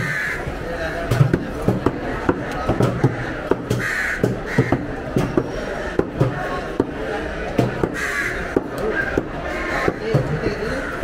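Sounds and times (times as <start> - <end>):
crows cawing: 0.0 - 0.6, 2.9 - 5.0, 7.8 - 11.0
cleavers chopping on wood: 1.0 - 10.6.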